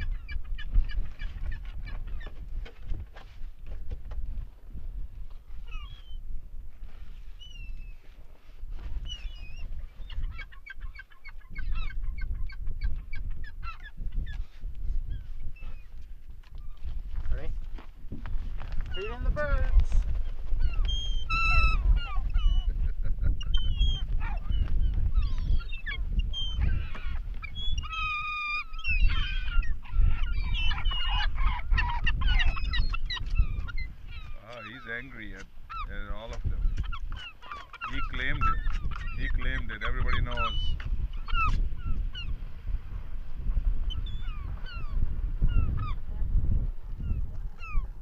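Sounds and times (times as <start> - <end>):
gulls calling: 5.6 - 6.2, 9.0 - 14.5, 18.7 - 42.4, 43.8 - 46.1.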